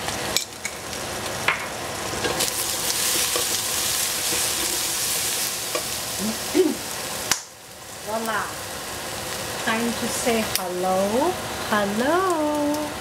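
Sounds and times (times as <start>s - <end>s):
vegetables sizzling in oil: 0.0s - 13.0s.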